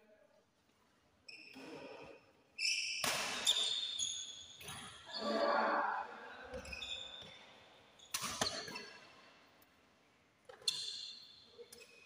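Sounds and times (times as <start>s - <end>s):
sneakers squeaking on court: 2.6s - 5.1s, 6.5s - 7.4s, 10.5s - 12.0s
rackets hitting shuttlecock: 3.0s - 3.8s, 8.1s - 9.0s.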